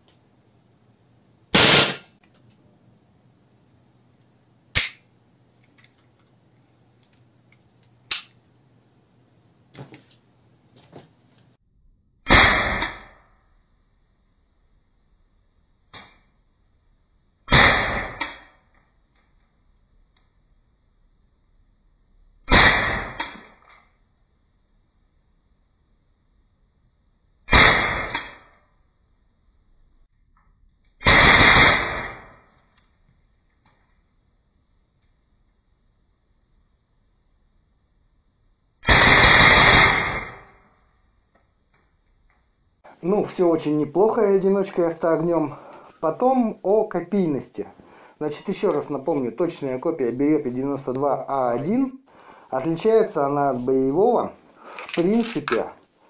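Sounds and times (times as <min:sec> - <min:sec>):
long blast: 0:01.6 - 0:02.1
airsoft pistol shots: 0:01.6 - 0:02.2, 0:04.8 - 0:05.0, 0:12.3 - 0:13.2, 0:17.5 - 0:18.6, 0:22.5 - 0:23.6, 0:27.5 - 0:28.6, 0:31.0 - 0:32.4, 0:38.8 - 0:40.6
pistol handling clicks and knocks: 0:08.1 - 0:08.4.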